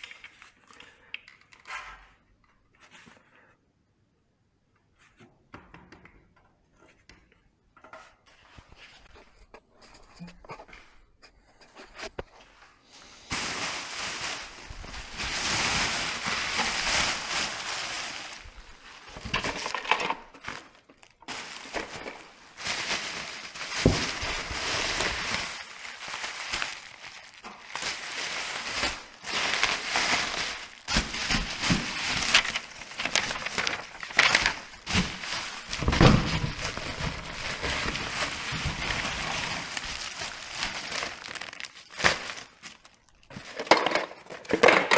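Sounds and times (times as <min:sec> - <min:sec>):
bubble wrap crinkling: 0:12.0 - 0:44.3.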